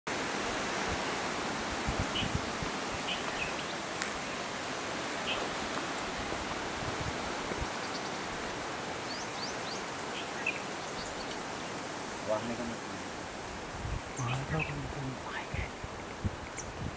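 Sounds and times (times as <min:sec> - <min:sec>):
steady outdoor hiss: 0:00.1 - 0:16.9.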